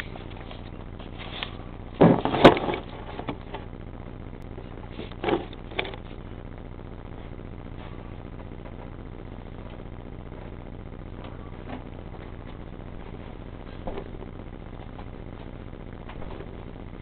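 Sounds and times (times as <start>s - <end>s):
steady low hiss: 0.0s - 17.0s.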